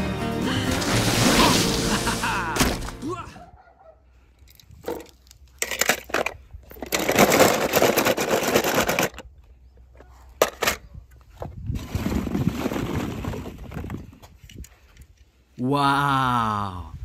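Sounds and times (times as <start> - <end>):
plastic balls and toy cars clattering: 4.5 - 14.7.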